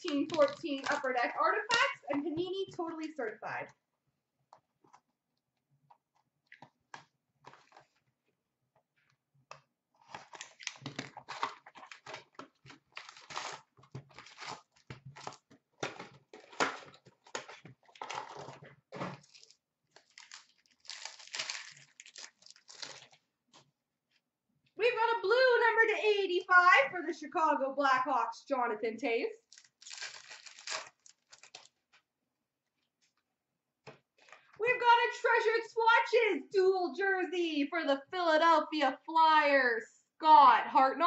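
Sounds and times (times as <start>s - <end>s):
wrappers crinkling and tearing: 0.0s - 2.0s, 10.0s - 23.3s, 29.4s - 31.9s.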